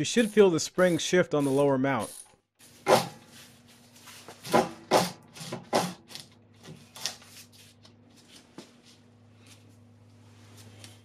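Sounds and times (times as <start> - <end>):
ratchet metallic clicks and scrapes: 0.1 - 2.4.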